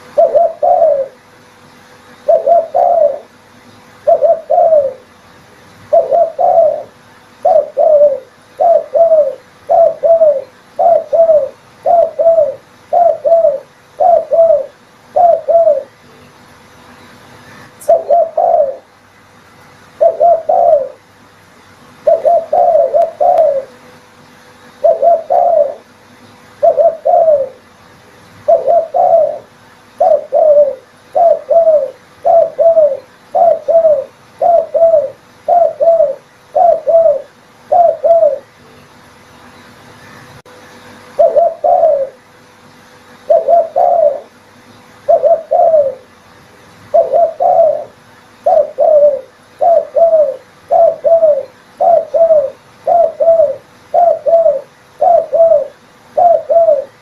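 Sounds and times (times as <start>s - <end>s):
dove cooing: 0.0s - 1.3s, 2.2s - 5.2s, 5.9s - 16.0s, 17.5s - 19.0s, 20.0s - 21.1s, 22.0s - 23.9s, 24.6s - 26.0s, 26.6s - 27.7s, 28.4s - 38.6s, 41.2s - 42.2s, 43.2s - 44.4s, 45.0s - 46.2s, 46.9s - 57.0s.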